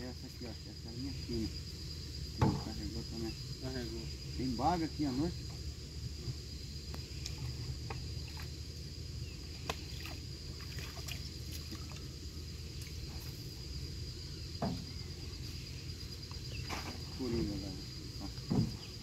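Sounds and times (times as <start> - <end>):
crickets trilling: 0.0 - 19.0
boat knocks and splashes: 2.4 - 2.9, 14.6 - 15.0, 16.5 - 17.4, 18.2 - 19.0.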